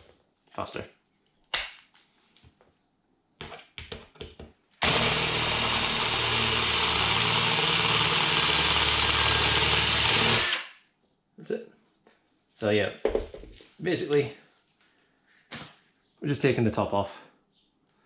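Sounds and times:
cordless drill drilling metal: 4.8 - 10.7
drill clicks: 4.8 - 10.7.

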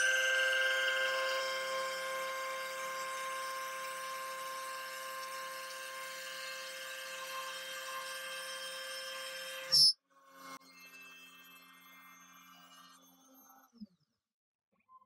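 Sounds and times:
wood router whining: 0.0 - 9.9.

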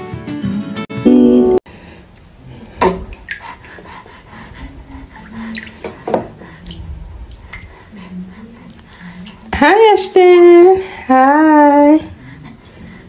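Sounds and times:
water splashing in bath: 2.1 - 9.8.

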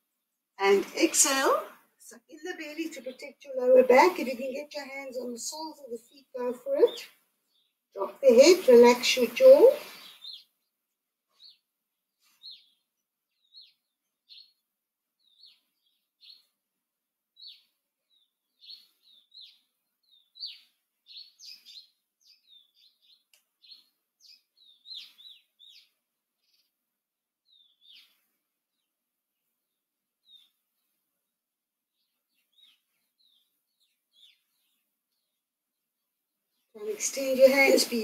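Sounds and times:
small birds chirping: 0.0 - 38.0.

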